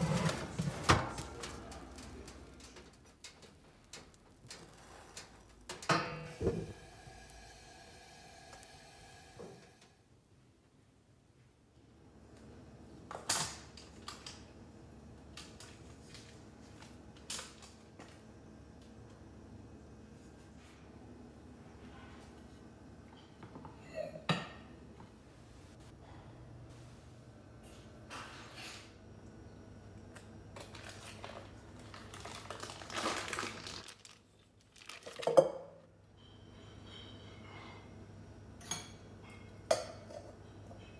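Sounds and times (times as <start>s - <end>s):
foil wrapper crinkling: 30.6s - 35.4s.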